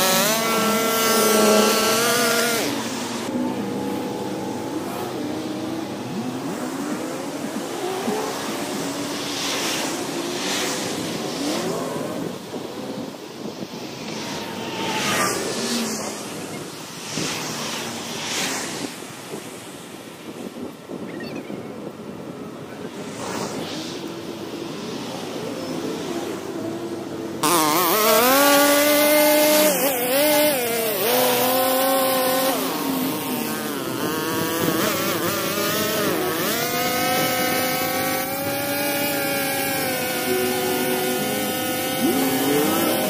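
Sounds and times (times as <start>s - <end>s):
string trimmer cutting grass: 0.0s - 12.3s, 27.4s - 43.0s.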